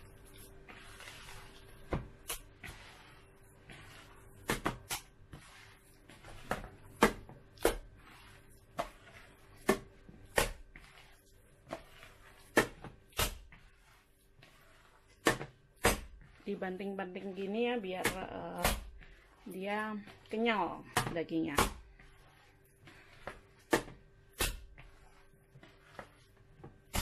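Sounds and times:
dough slapping into plastic bowl: 0:04.4 - 0:05.2, 0:06.3 - 0:07.9, 0:08.8 - 0:10.8, 0:20.7 - 0:22.0.

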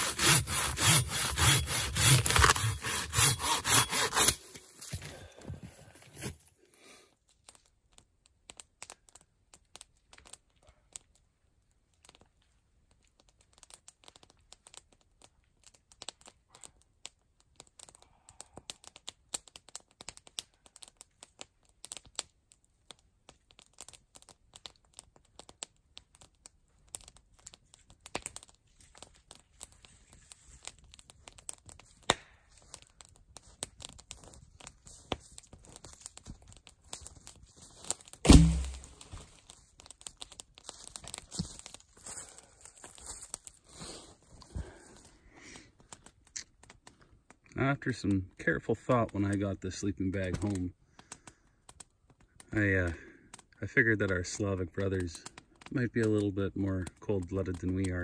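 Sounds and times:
faint crackling and rustling: 0:04.5 - 0:58.0
sharp cracks: 0:37.9 - 0:40.4.

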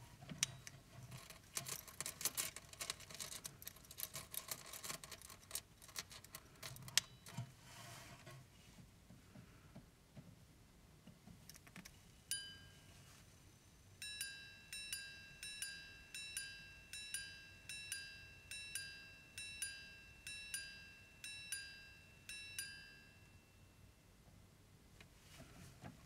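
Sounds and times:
pocket watch chiming on gongs: 0:12.3 - 0:12.9, 0:14.0 - 0:24.0.

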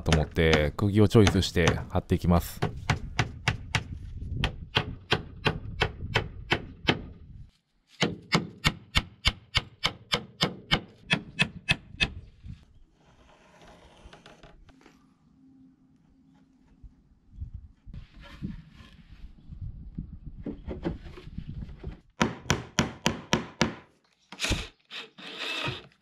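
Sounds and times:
hammer driving nails into wood: 0:08.0 - 0:12.1, 0:22.2 - 0:24.7.

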